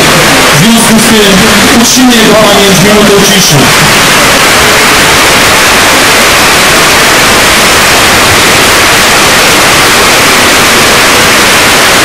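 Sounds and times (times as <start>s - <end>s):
loud static hiss: 0.0s - 12.0s.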